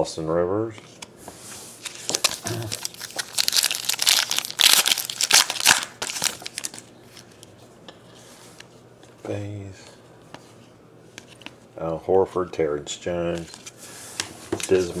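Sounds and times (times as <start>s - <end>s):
foil wrapper tearing and crinkling: 2.1s - 6.9s.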